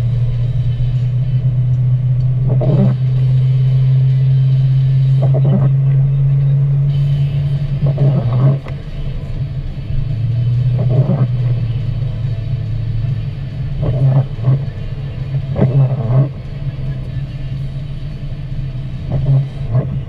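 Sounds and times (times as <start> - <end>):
car engine droning: 0.0 - 20.0
windshield wiper passes: 2.2 - 3.8, 4.7 - 5.8, 7.0 - 9.2, 10.6 - 20.0.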